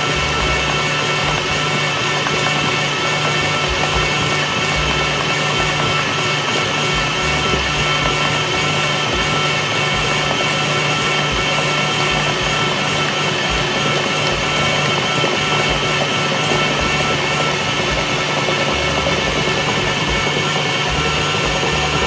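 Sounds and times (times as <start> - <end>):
stand mixer motor humming: 0.0 - 22.0.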